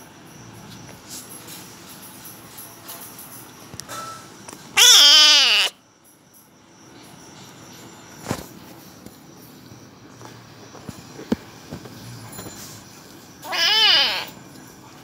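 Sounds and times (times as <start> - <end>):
cat meowing: 4.8 - 5.7, 13.4 - 14.3.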